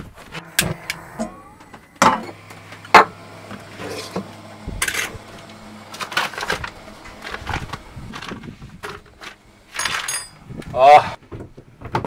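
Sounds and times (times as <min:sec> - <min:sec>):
hands handling kitchen things: 0:02.0 - 0:10.7.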